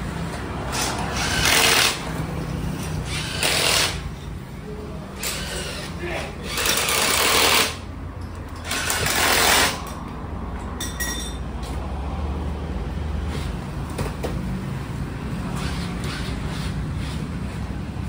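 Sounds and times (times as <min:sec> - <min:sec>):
impact wrench rattling: 0:06.5 - 0:10.0
light metallic clinks: 0:10.6 - 0:11.5.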